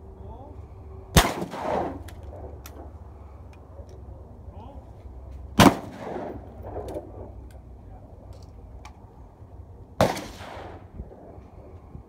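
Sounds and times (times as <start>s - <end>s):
shotgun shot: 1.2s - 2.4s, 5.6s - 7.0s, 10.0s - 10.9s.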